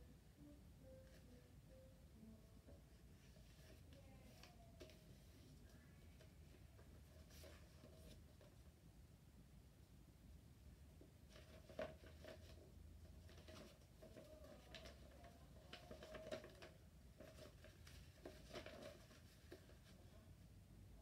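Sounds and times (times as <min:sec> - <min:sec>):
paper creasing taps: 0:13.2 - 0:20.0
paper rustling and crinkling: 0:13.2 - 0:20.2.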